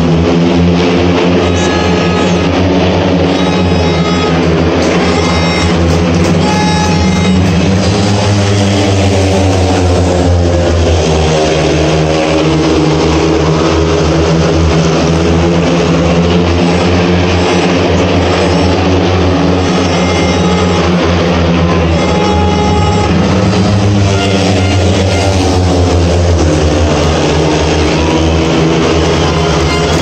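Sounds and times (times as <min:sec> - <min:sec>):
motorcycle engines racing: 0:00.0 - 0:30.0.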